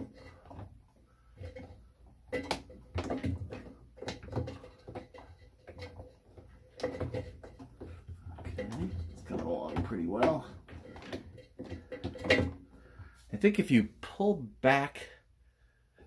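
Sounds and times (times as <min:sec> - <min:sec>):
rubber gasket knocks and clicks: 0:01.4 - 0:12.7.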